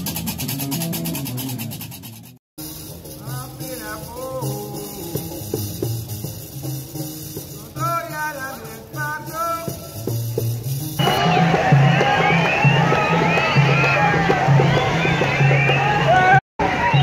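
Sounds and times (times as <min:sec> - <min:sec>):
ornamented melody over bass: 0:00.0 - 0:12.7.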